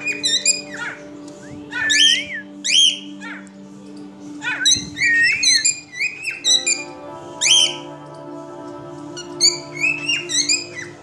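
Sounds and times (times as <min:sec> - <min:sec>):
cockatiel whistling: 0:00.0 - 0:03.4, 0:04.4 - 0:07.8, 0:09.4 - 0:11.0.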